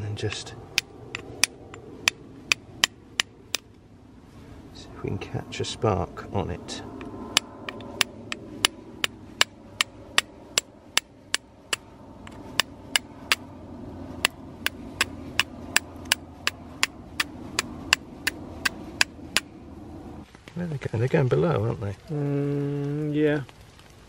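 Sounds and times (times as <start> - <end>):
flint and steel striking clicks: 0.7 - 3.8, 7.0 - 13.5, 14.2 - 19.5.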